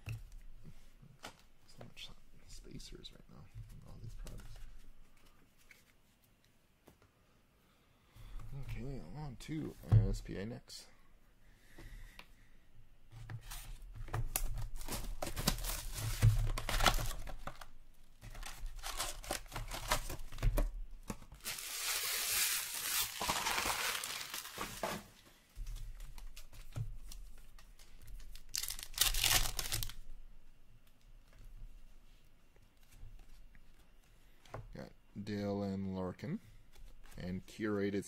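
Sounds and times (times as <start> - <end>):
crinkling of wrap: 14.5 - 20.3, 21.4 - 25.0, 25.8 - 30.1
foil pack tearing open: 18.4 - 20.1, 21.4 - 25.0, 28.4 - 30.0
plastic shrink wrap tearing: 18.4 - 20.1, 21.4 - 25.0, 28.3 - 30.0.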